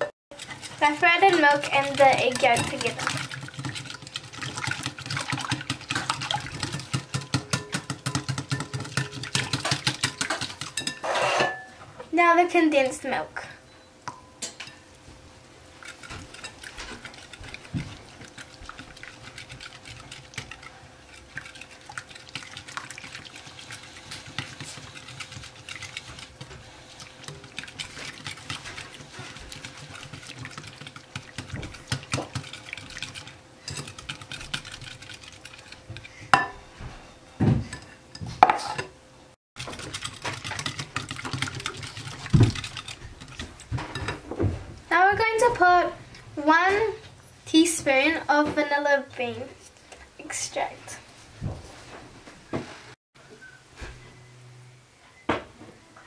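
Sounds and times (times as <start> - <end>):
whisk ticking against glass bowl: 0.4 - 11.0, 15.8 - 36.1, 39.6 - 43.5.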